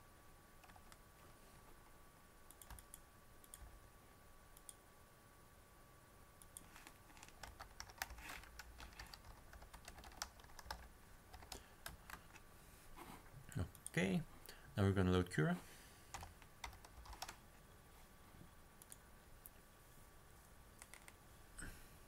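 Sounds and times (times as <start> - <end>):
typing on computer keyboard: 0.6 - 1.0, 2.5 - 3.7, 6.6 - 12.4, 16.1 - 17.4, 20.8 - 21.2.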